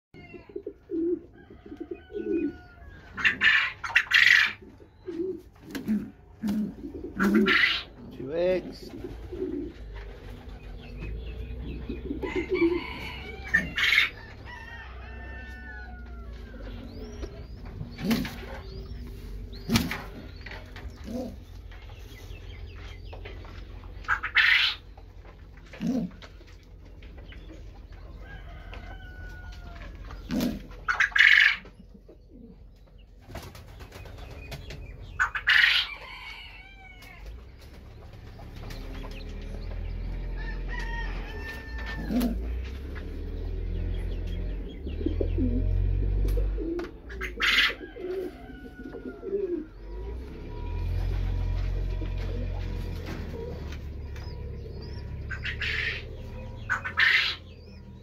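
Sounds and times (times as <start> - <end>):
pigeons cooing low: 0.2 - 58.0
wing flaps: 19.6 - 20.3.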